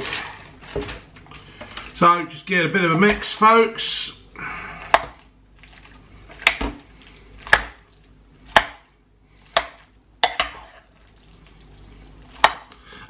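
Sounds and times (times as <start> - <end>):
food stirring sounds: 4.8 - 12.8.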